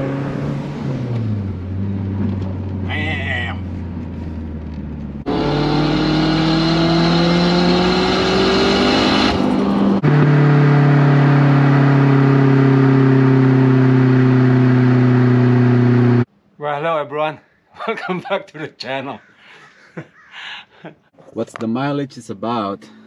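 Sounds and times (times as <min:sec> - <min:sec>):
car exhaust accelerating: 0:00.0 - 0:16.3.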